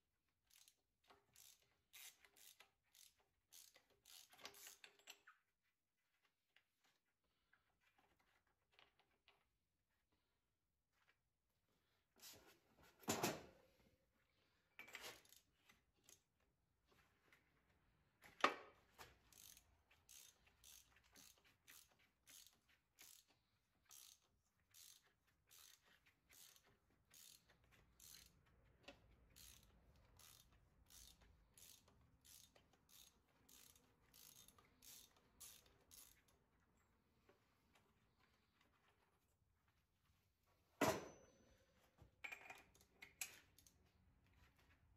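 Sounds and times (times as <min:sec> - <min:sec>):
ratchet wrench clicking: 0:00.5 - 0:05.0, 0:19.3 - 0:36.4.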